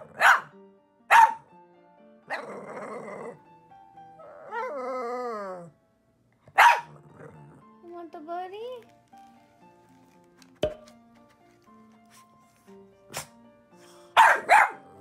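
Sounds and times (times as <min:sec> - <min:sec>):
dog barking: 0:00.0 - 0:00.5, 0:01.1 - 0:01.5, 0:06.5 - 0:07.0, 0:14.2 - 0:15.0.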